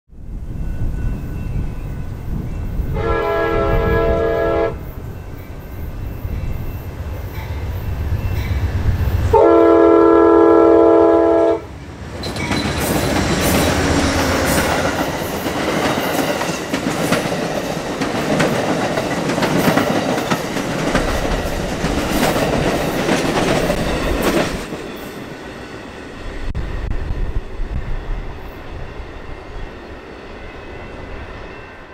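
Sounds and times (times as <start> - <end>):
diesel locomotive rumbling: 0.2 - 31.5
train air horn blasts: 2.9 - 4.9, 9.3 - 11.7
train wheels clickety-clack: 11.8 - 25.4.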